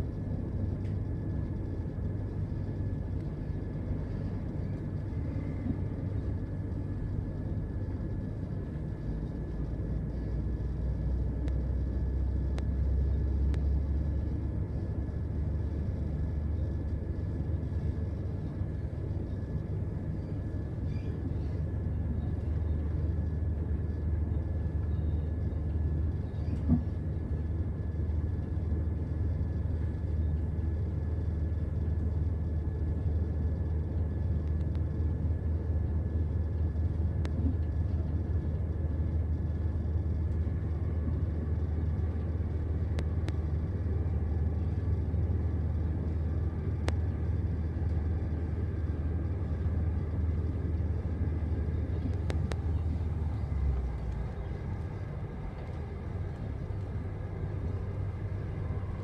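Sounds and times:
faint steady whine: 0:00.0 - 0:59.0
train rumbling at speed: 0:00.0 - 0:59.0
faint clicks: 0:36.5 - 0:37.8, 0:46.8 - 0:47.1, 0:52.0 - 0:53.0.

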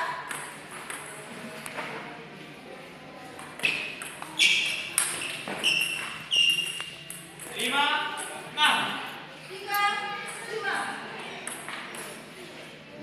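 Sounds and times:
sports shoes squeaking on court: 0:03.6 - 0:08.4.

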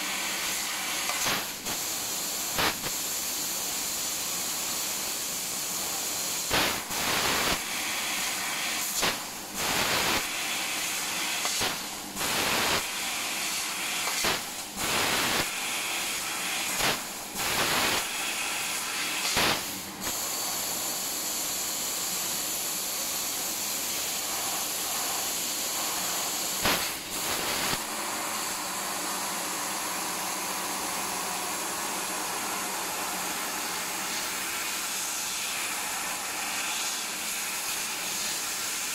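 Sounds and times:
hiss of cutting gas: 0:00.0 - 0:38.9.

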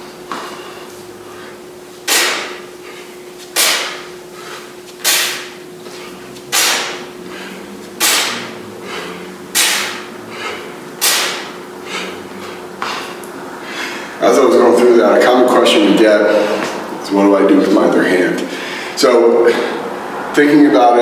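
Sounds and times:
faint steady hum: 0:00.0 - 0:21.0
man's forceful breaths out: 0:00.5 - 0:14.2
soft breathing: 0:07.2 - 0:10.8, 0:11.8 - 0:14.2, 0:18.4 - 0:20.0.

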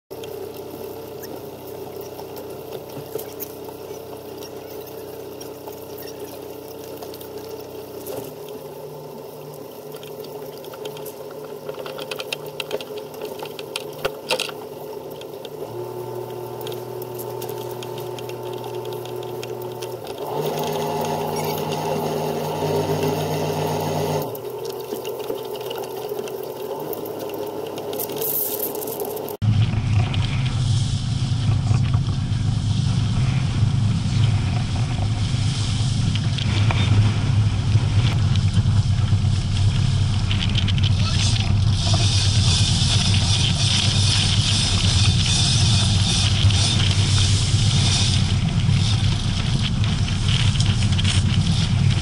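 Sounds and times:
boat diesel engine running: 0:15.5 - 0:26.2.

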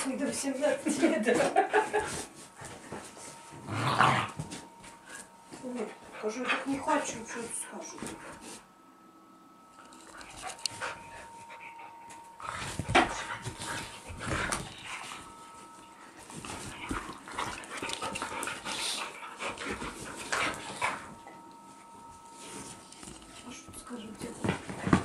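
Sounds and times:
dogs scuffling: 0:00.0 - 0:08.6, 0:12.1 - 0:25.0
dogs breathing: 0:09.9 - 0:25.0.

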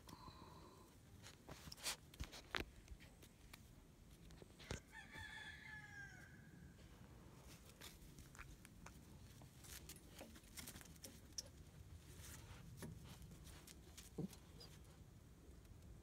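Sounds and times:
puppies scuffling: 0:07.4 - 0:15.0.

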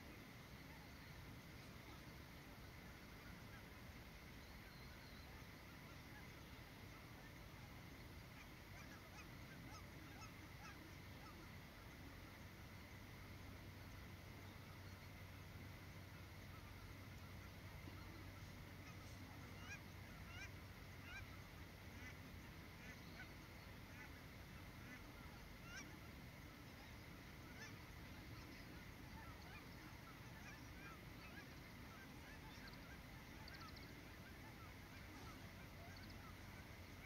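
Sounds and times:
geese honking: 0:05.2 - 0:13.4, 0:16.1 - 0:37.0.

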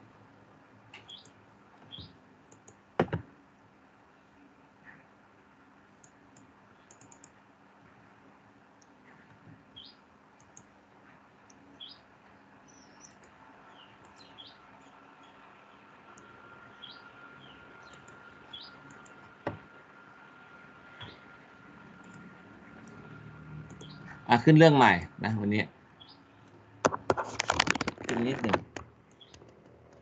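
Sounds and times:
small birds chirping faintly: 0:00.8 - 0:26.5, 0:28.1 - 0:30.0
computer mouse clicking: 0:01.9 - 0:03.2, 0:06.0 - 0:07.4, 0:10.4 - 0:10.7, 0:17.8 - 0:18.2, 0:18.8 - 0:19.2, 0:22.0 - 0:24.0, 0:26.9 - 0:30.0.

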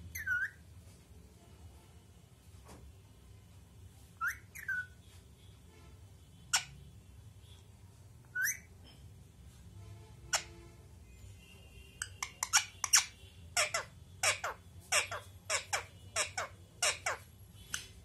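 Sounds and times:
parakeet whistled calls: 0:00.1 - 0:00.6, 0:04.2 - 0:05.0, 0:08.3 - 0:08.7.

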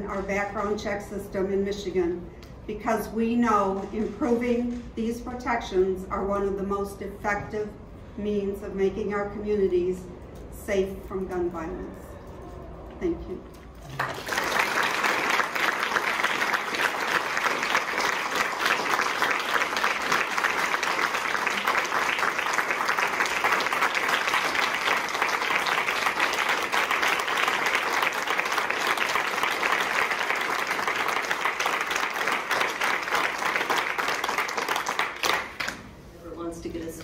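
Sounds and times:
people applauding: 0:13.7 - 0:35.8.

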